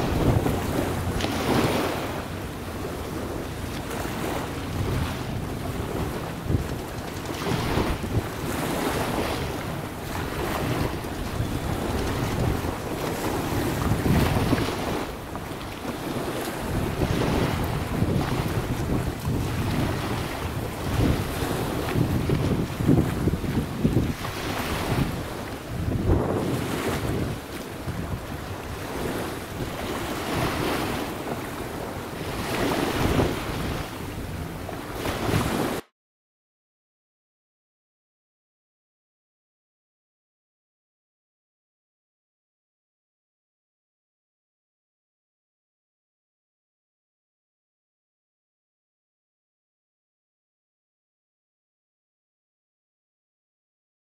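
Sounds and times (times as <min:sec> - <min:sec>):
choppy sea water washing: 0:00.0 - 0:35.8
waves rushing: 0:00.0 - 0:35.8
wind buffeting microphone: 0:00.0 - 0:35.8.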